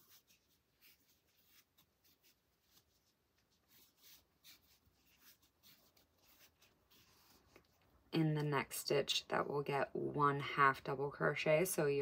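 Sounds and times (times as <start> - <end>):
crochet hook brushing yarn: 0.0 - 8.0.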